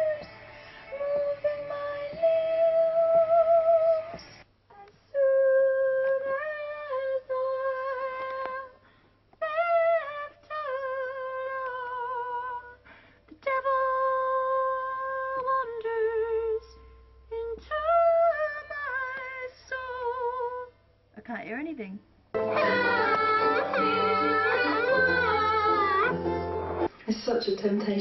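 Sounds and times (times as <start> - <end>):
woman singing high notes: 22.4 - 26.4.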